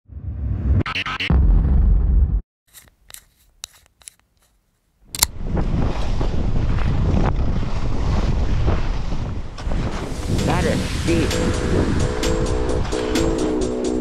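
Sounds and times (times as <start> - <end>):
wind on microphone: 5.3 - 14.0
skis running over snow: 5.6 - 11.0.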